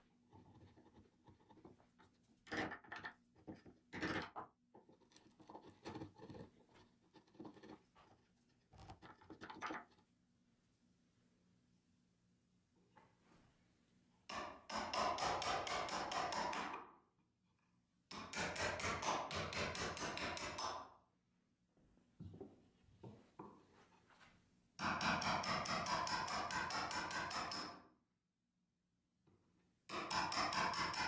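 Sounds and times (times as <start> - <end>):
chisel paring wood: 14.3 - 16.8, 24.8 - 27.8, 29.9 - 31.0.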